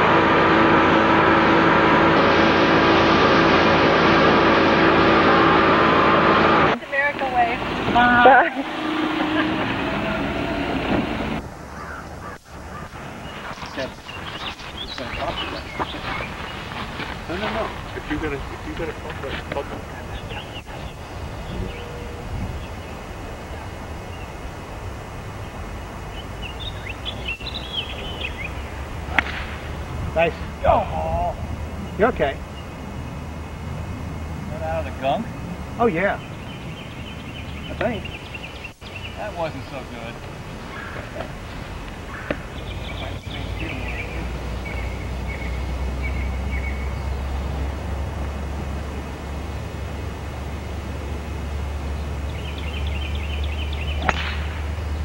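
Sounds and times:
birds chirping: 0.0 - 55.0
steady low rumble: 0.0 - 55.0
high bird chirps: 26.1 - 28.8
golf club hitting ball: 29.1 - 29.6, 54.0 - 54.6.

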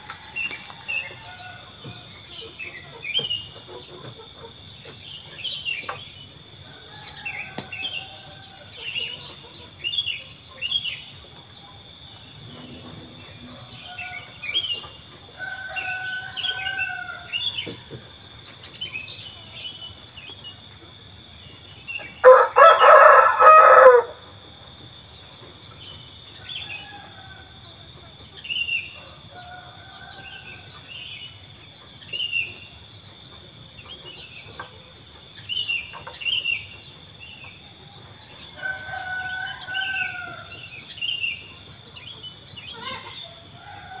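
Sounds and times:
rooster crowing: 13.0 - 17.5, 22.2 - 24.2, 38.3 - 40.7, 43.4 - 44.0.

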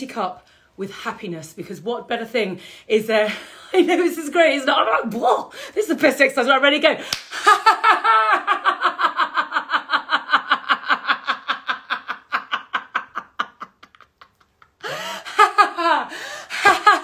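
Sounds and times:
woman laughing heartily: 7.4 - 17.0.

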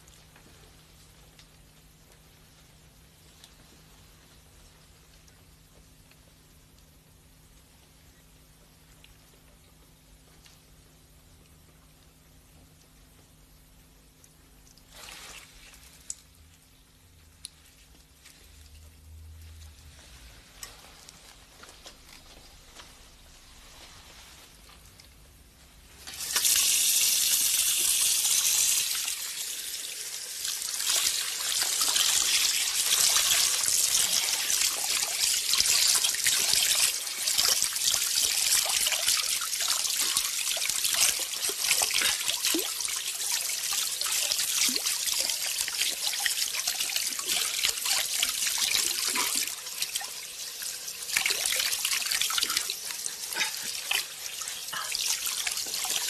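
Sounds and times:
running water trickling: 25.9 - 56.0.

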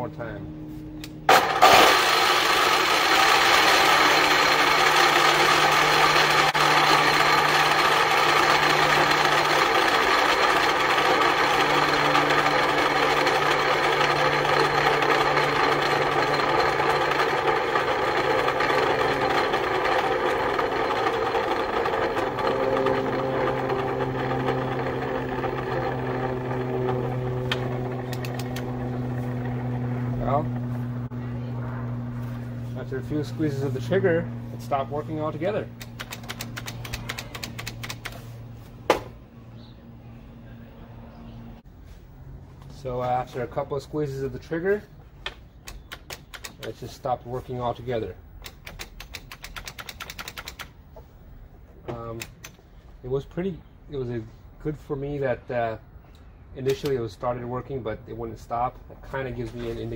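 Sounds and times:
miter saw motor whining: 1.0 - 35.3.

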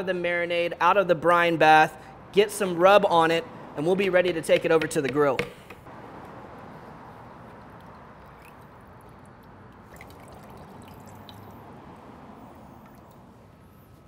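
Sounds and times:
liquid trickling and dripping: 7.4 - 13.2.

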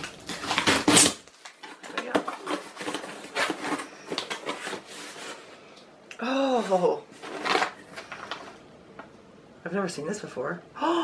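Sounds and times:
cardboard tearing: 0.0 - 5.4, 7.1 - 8.5
cardboard rustling and scraping: 0.0 - 5.6, 6.6 - 8.6.

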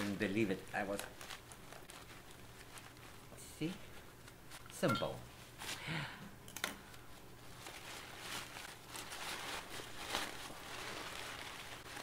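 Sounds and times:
tissue paper crinkling: 0.0 - 4.7, 7.1 - 12.0.

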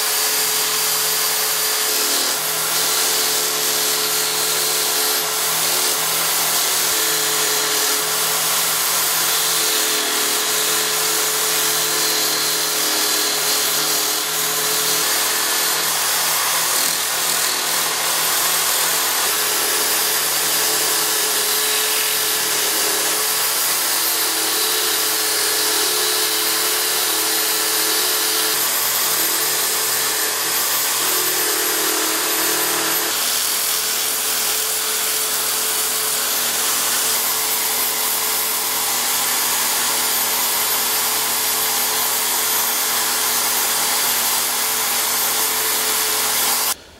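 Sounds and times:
chisel cutting spinning wood: 0.0 - 46.8
wood lathe motor hum: 0.0 - 46.8.

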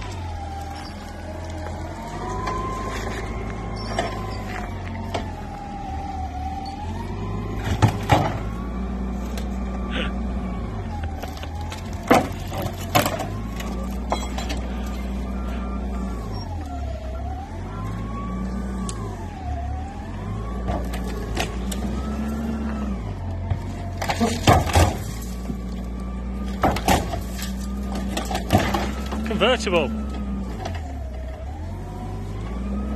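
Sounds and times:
forklift engine revving: 0.0 - 32.9
metallic clunks and rattles: 7.6 - 8.6, 26.4 - 29.2.

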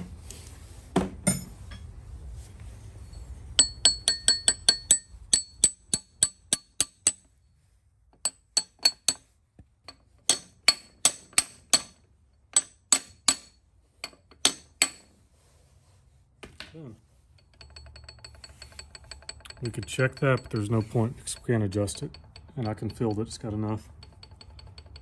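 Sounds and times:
mallet tapping on metal gear: 3.6 - 7.2, 17.5 - 25.0.

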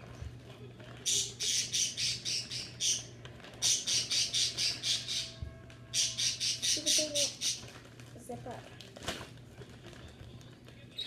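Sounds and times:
plastic bag crinkling: 7.6 - 11.0.

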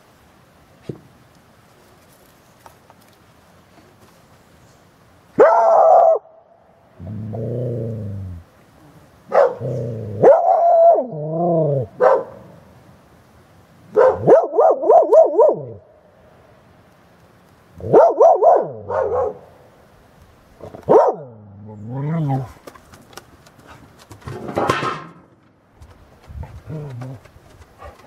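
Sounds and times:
dogs growling and barking: 7.0 - 8.4, 9.3 - 12.2.

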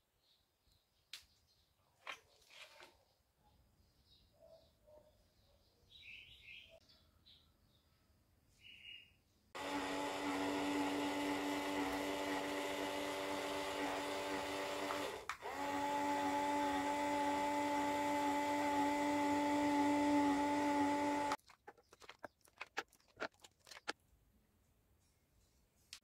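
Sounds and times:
small electric motor whining: 9.6 - 21.4.

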